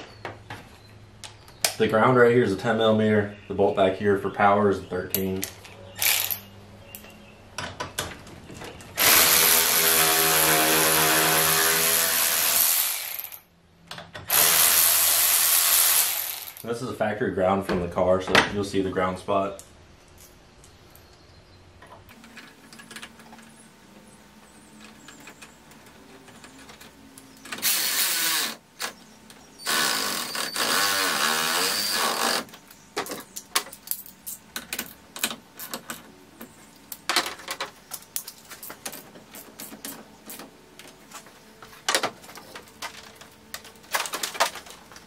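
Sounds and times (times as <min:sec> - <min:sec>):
handheld power tool running: 0:09.0 - 0:13.4, 0:14.3 - 0:16.6, 0:27.6 - 0:28.6, 0:29.6 - 0:32.5
tools and parts clicking: 0:32.6 - 0:41.0.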